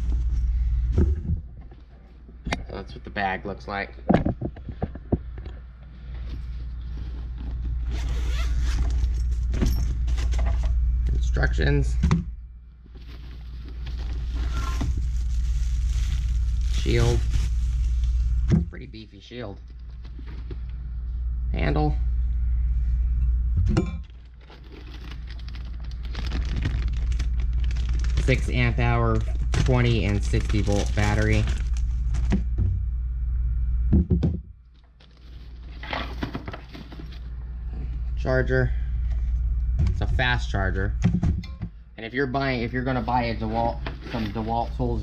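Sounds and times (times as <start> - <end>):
low steady rumble: 0.0 - 45.0
steady low hum: 0.0 - 45.0
plastic packaging crinkling: 13.0 - 18.4, 24.2 - 32.4.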